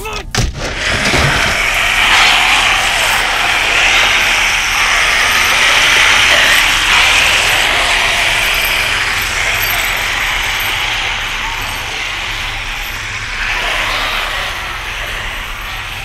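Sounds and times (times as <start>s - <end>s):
loud crackling static: 0.7s - 16.0s.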